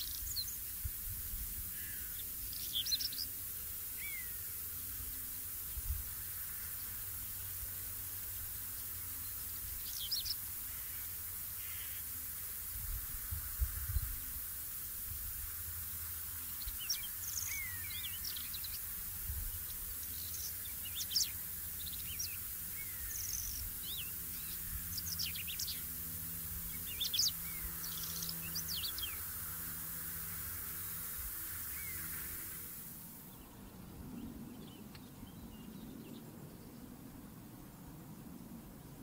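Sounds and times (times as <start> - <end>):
bird singing scratchy chirps: 0.0 - 0.8, 1.4 - 12.2, 16.3 - 33.5.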